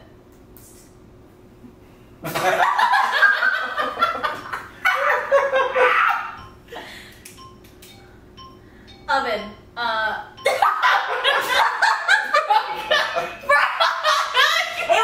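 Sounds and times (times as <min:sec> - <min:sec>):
people laughing: 0:02.2 - 0:06.4, 0:10.5 - 0:15.0.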